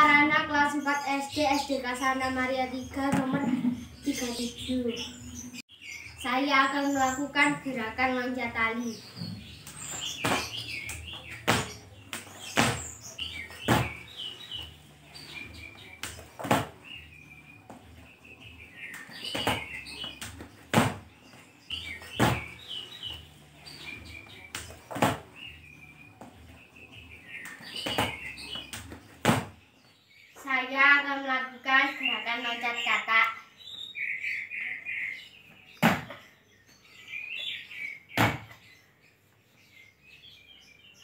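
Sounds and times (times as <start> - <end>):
birds chirping: 0.0 - 41.0.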